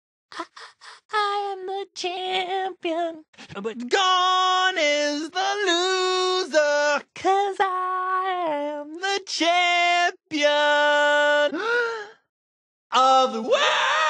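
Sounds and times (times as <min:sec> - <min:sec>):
woman singing pop song: 0:00.4 - 0:03.3, 0:07.1 - 0:09.0.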